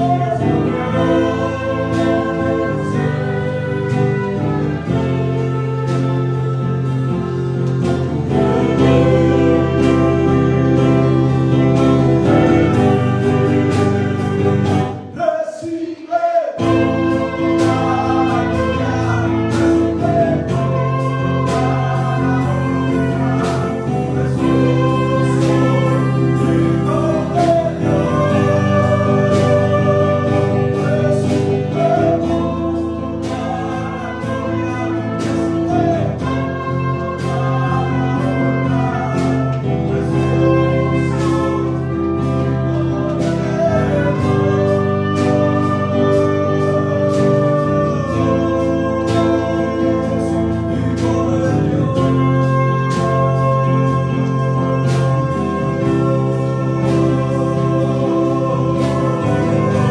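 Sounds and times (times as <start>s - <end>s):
man singing worship song: 0.0s - 7.3s, 7.9s - 59.9s
electric guitar: 0.0s - 15.1s, 16.6s - 59.9s.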